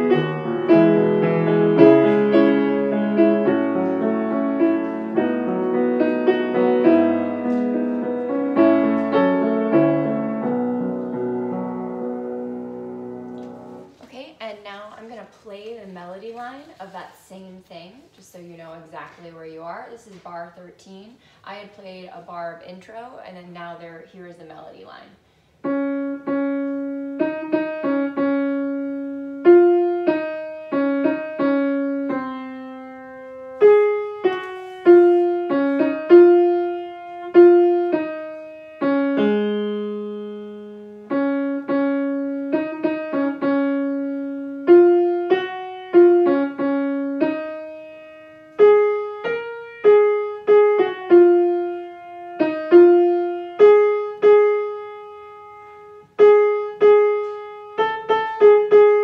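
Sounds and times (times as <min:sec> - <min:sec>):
piano playing single notes: 0:00.0 - 0:13.9, 0:25.6 - 0:59.0.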